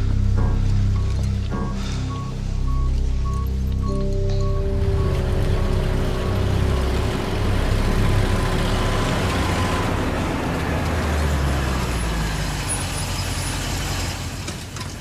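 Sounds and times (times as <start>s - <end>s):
truck engine driving past: 0.0s - 14.4s.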